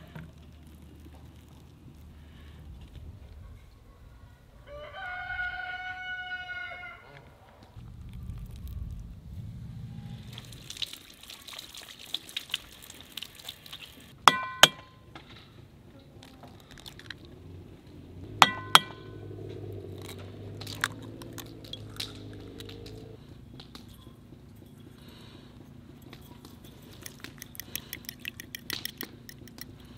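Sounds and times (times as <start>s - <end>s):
bowl ringing: 14.3s - 15.0s, 18.4s - 19.2s
eggs tapping ceramic bowl: 18.4s - 19.0s, 27.0s - 29.7s.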